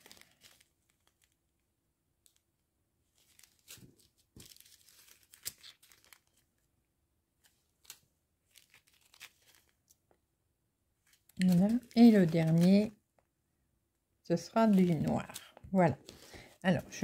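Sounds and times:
thin plastic crinkling: 0:00.0 - 0:01.6, 0:03.1 - 0:06.6, 0:07.4 - 0:10.2, 0:11.0 - 0:13.0.

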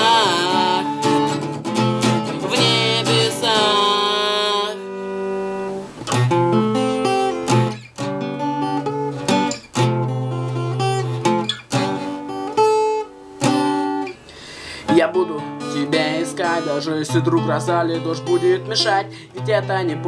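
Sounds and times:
man singing with vibrato: 0:00.0 - 0:01.4, 0:02.3 - 0:04.9, 0:14.8 - 0:20.0
acoustic guitar strumming chords: 0:00.0 - 0:20.0.

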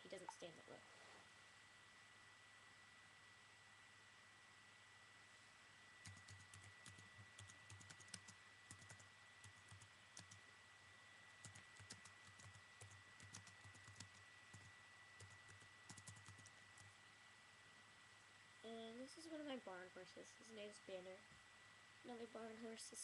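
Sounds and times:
faint electrical whine: 0:00.0 - 0:23.0
typing on keyboard: 0:06.0 - 0:10.4, 0:11.4 - 0:16.9.

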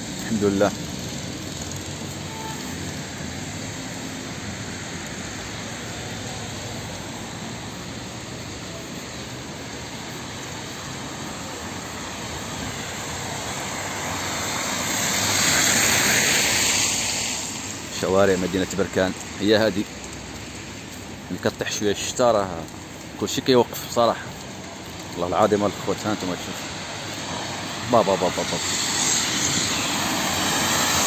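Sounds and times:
traffic hiss on flooded street: 0:00.0 - 0:31.0
car driving through water: 0:11.8 - 0:17.7, 0:26.6 - 0:31.0.

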